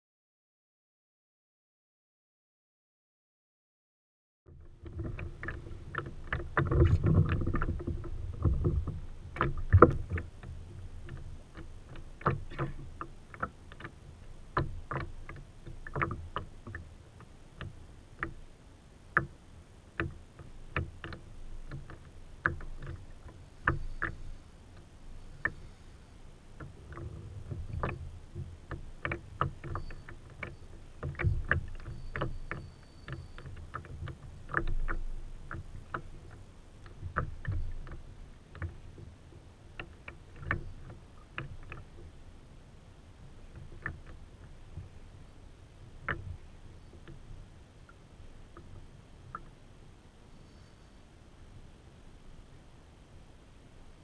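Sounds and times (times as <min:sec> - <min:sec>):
knocks and clicks from boat: 0:04.5 - 0:18.5, 0:19.1 - 0:19.4, 0:20.0 - 0:25.8, 0:26.6 - 0:42.2, 0:43.4 - 0:45.2, 0:45.8 - 0:49.6
water washing along hull: 0:04.9 - 0:42.2.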